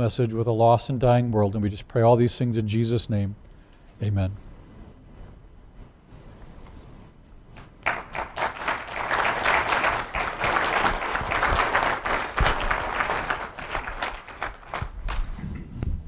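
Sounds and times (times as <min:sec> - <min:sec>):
audience applauding: 0:07.8 - 0:15.3.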